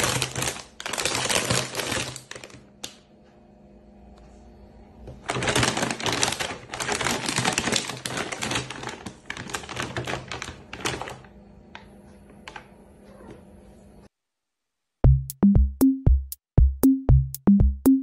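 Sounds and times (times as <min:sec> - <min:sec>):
plastic bag crinkling: 0:00.0 - 0:03.0, 0:05.2 - 0:11.4.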